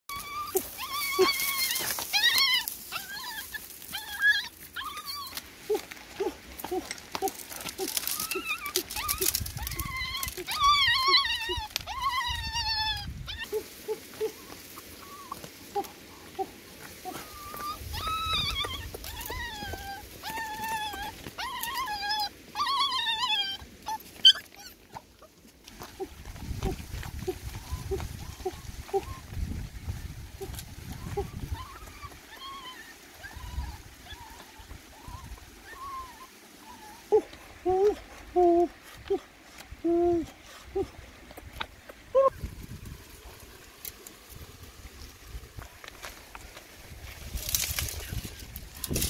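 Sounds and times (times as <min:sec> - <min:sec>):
puppy yips: 0:00.1 - 0:05.4, 0:08.1 - 0:13.5, 0:17.1 - 0:24.8, 0:31.2 - 0:38.0
puppies whining: 0:00.1 - 0:25.3, 0:31.0 - 0:39.3.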